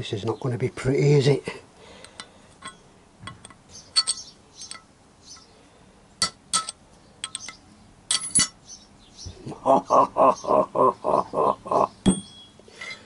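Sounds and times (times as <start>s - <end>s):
steel punch striking metal: 12.1s - 12.5s.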